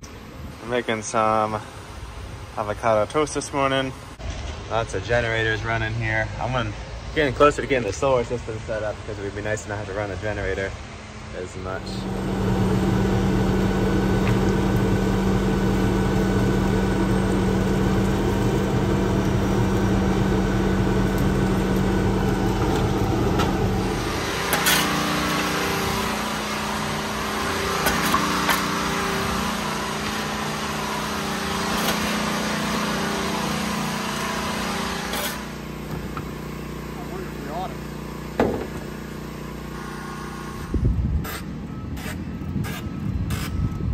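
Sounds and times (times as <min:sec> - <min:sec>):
truck engine running: 0:11.7 - 0:40.6.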